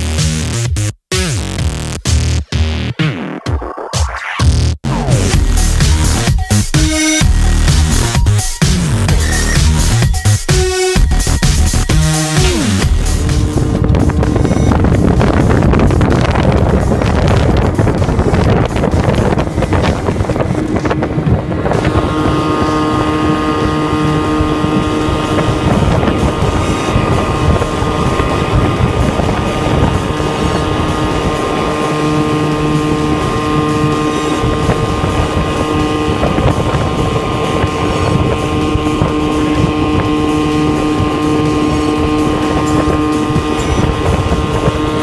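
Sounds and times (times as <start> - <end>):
outboard motor running: 5.1 - 45.0
wind buffeting microphone: 12.8 - 45.0.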